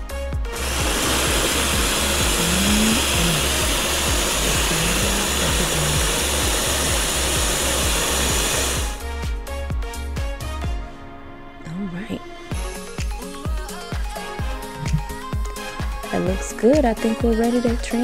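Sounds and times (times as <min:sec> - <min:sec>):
blender whirring: 0:00.0 - 0:09.0
background music with bass beat: 0:08.9 - 0:10.9, 0:12.6 - 0:17.5.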